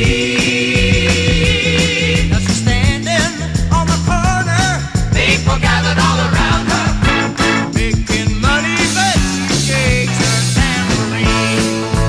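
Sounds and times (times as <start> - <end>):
bass line: 0.0 - 12.0
drum beat: 0.0 - 12.0
bending lead guitar notes: 6.4 - 12.0.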